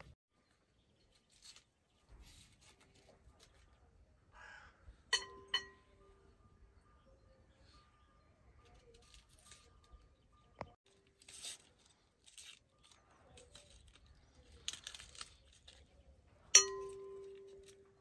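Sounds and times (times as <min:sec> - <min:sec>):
sharp clink against a bowl: 0:05.1 - 0:06.0, 0:16.6 - 0:17.8
eggshell cracking and tearing: 0:10.9 - 0:16.0.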